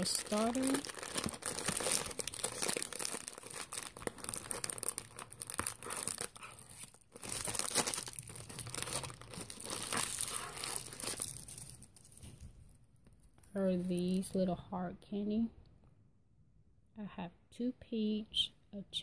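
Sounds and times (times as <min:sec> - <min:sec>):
plastic wrappers crinkling: 0:00.0 - 0:12.8.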